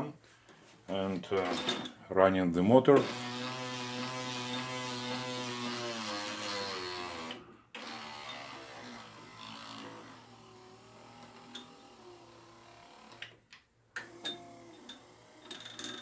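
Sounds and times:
electric motor whine and gear hum: 3.0 - 13.4, 14.0 - 15.7.

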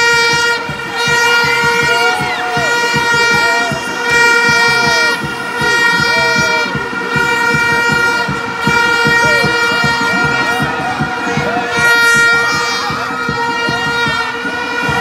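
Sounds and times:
gliding horn tones: 0.0 - 15.0
horn steady note: 0.0 - 15.0
stadium crowd: 0.0 - 15.0.

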